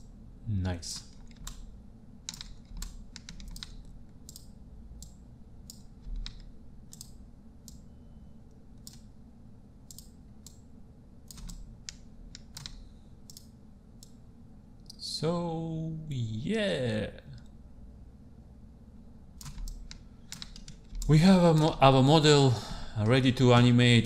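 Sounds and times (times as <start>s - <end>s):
low steady hum: 0.0s - 24.0s
mouse and keyboard clicks: 2.3s - 7.8s, 11.3s - 14.2s.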